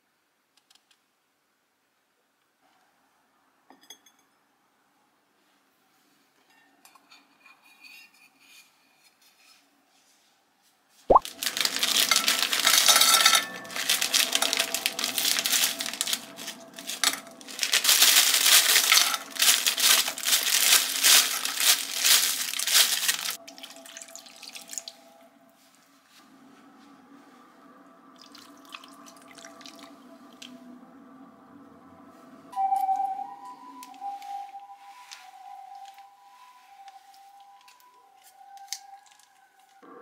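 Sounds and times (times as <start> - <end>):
shrimp crackling and sizzling in pan: 11.2 - 24.9.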